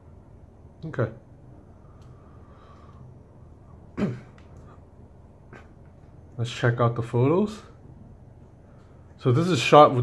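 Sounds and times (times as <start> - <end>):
low steady hum: 0.0 - 10.0
faint click: 2.0 - 2.2.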